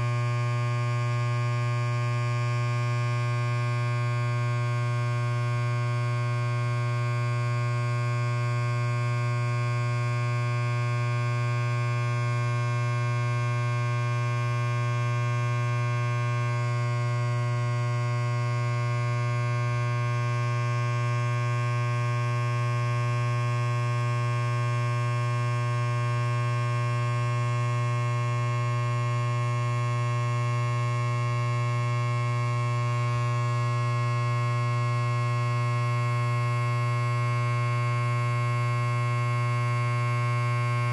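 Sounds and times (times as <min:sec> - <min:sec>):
electric hair clipper buzzing: 0:39.8 - 0:40.9.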